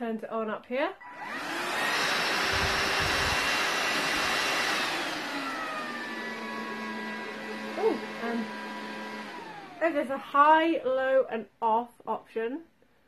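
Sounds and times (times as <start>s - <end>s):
stick vacuum motor whining: 1.0s - 9.9s.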